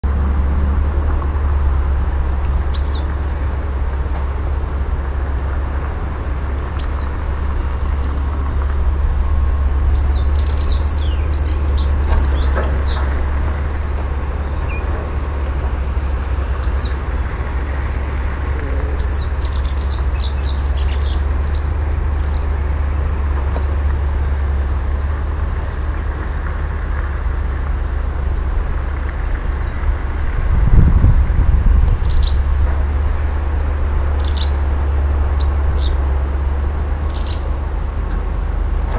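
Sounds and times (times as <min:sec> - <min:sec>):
steady low rumble: 0:00.0 - 0:38.9
bird chirping: 0:02.4 - 0:03.6, 0:06.2 - 0:08.4, 0:09.2 - 0:22.6, 0:32.0 - 0:32.5, 0:33.8 - 0:38.2.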